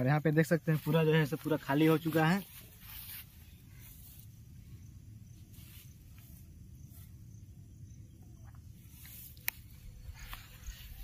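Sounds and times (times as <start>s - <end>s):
faint insect chirps: 0.0s - 11.0s.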